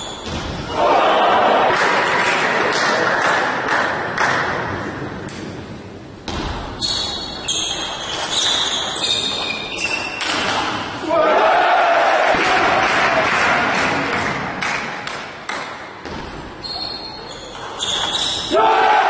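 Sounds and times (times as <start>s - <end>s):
crowd noise: 0.0s - 6.2s, 10.9s - 19.0s.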